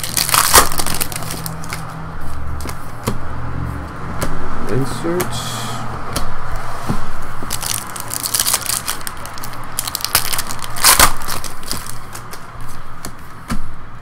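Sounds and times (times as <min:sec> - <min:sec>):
trading cards rustling: 0:00.0 - 0:03.1, 0:07.4 - 0:13.6.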